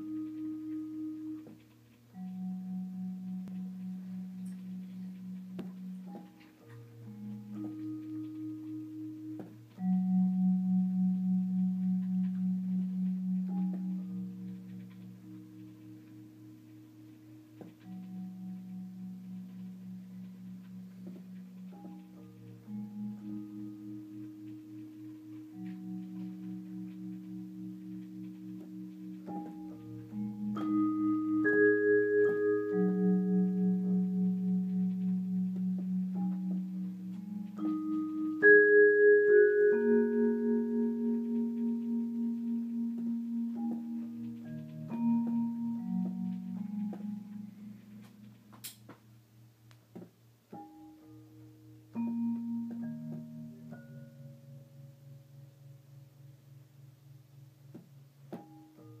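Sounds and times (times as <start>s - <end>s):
vibraphone notes ringing: 2.1s - 48.2s.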